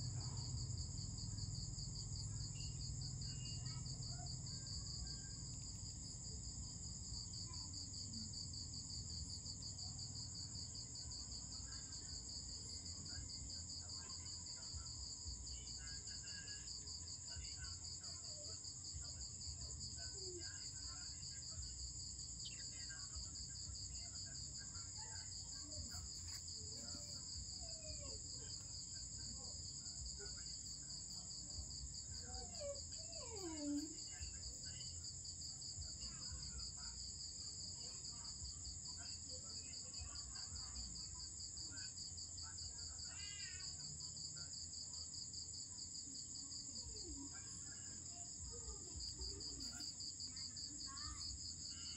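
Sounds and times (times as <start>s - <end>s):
insect trilling: 43.1s - 43.6s.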